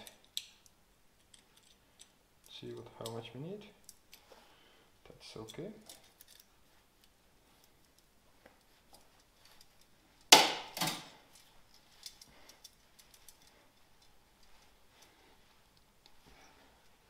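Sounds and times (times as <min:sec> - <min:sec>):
metal tool clicks and ticks: 0:00.0 - 0:03.2.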